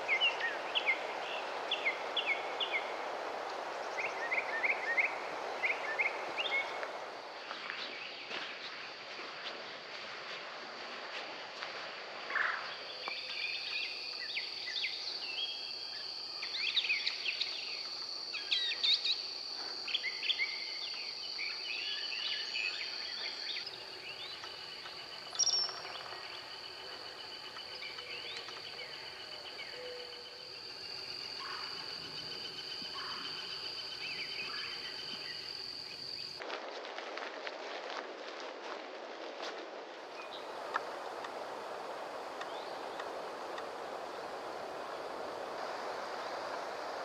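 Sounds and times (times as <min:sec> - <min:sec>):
insects trilling: 0:00.0 - 0:09.2, 0:12.2 - 0:36.4, 0:40.1 - 0:47.0
songbirds singing: 0:19.9 - 0:36.4.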